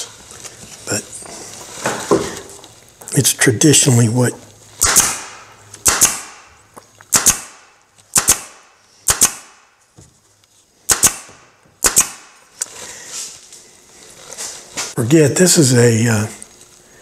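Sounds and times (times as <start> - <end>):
staple gun firing: 4.8 - 6.4, 7.1 - 9.6, 10.9 - 12.3.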